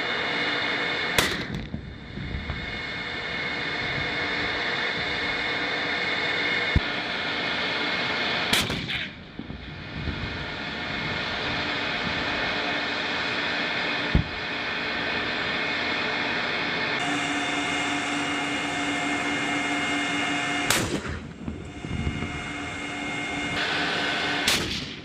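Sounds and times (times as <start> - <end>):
turbine engines whining: 0.0 - 25.0
sharp bangs: 8.5 - 9.6, 17.0 - 25.0.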